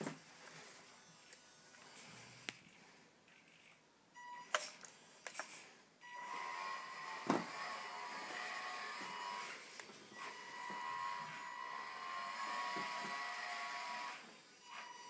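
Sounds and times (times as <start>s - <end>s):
small electric motor whining: 6.0s - 15.0s.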